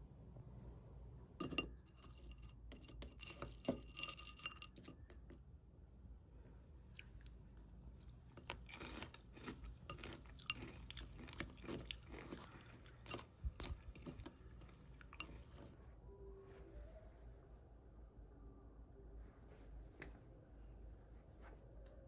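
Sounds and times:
granola crunching: 8.0 - 15.7.

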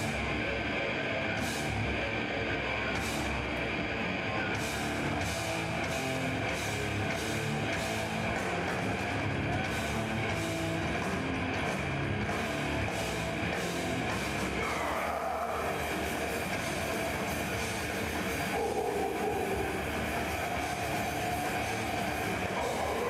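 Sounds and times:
distorted electric guitars and bass: 0.0 - 23.0.

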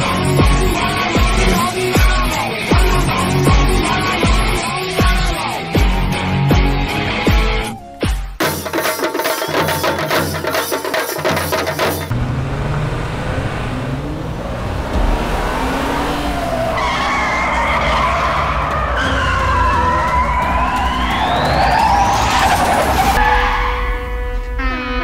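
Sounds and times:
music with a driving beat: 0.0 - 12.1
rising whine: 12.1 - 23.2
vehicle engines running hard: 12.1 - 23.2
tyres squealing and skidding: 12.1 - 24.3.

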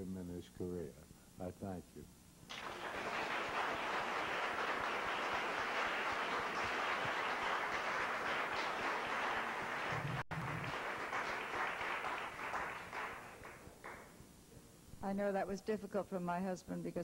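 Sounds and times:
audience applauding: 2.5 - 14.1.

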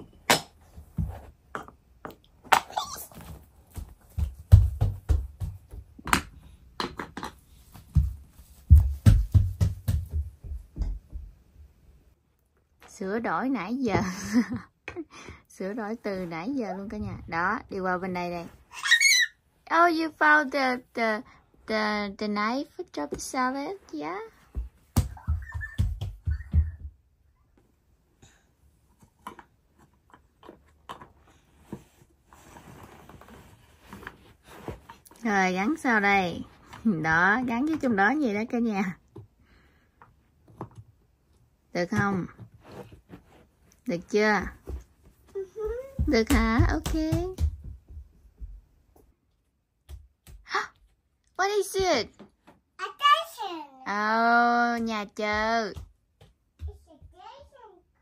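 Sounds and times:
bare feet on hardwood floor: 0.0 - 11.8, 13.8 - 14.6, 23.0 - 27.1, 41.8 - 49.1, 54.8 - 57.6
soft rustle: 31.1 - 36.9, 42.2 - 45.6.

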